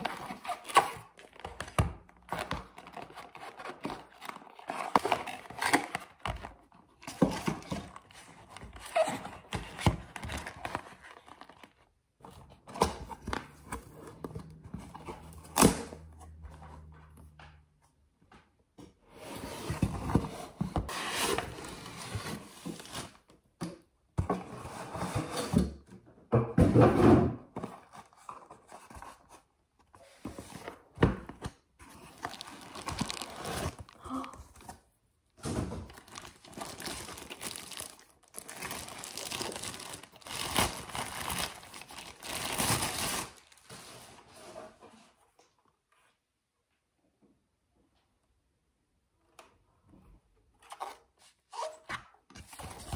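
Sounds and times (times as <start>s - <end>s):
packaging rustling and crinkling: 0.0s - 16.2s, 31.3s - 44.3s.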